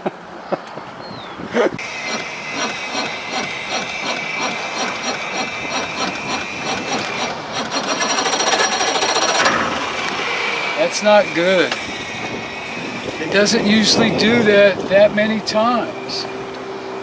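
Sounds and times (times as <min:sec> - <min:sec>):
starter motor cranking engine: 0:01.8 - 0:15.0.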